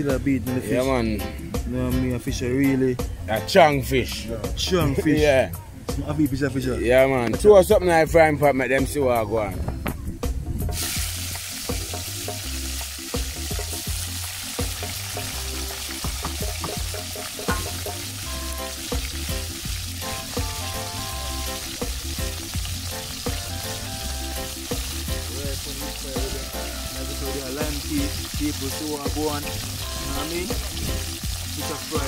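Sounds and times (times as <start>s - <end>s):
bass-heavy music: 0.0s - 32.0s
fish sizzling in hot oil: 10.7s - 32.0s.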